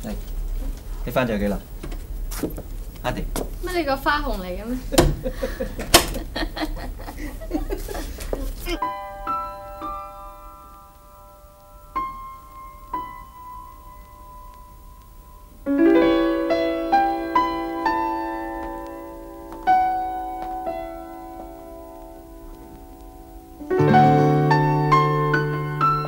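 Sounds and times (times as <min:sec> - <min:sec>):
piano music: 0:08.6 - 0:26.0.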